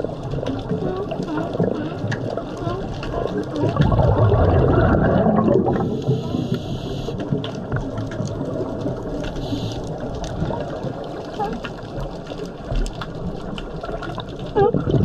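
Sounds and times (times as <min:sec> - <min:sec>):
regulator bubbling underwater: 0:00.0 - 0:15.0
regulator hiss: 0:05.8 - 0:07.2, 0:09.4 - 0:09.9.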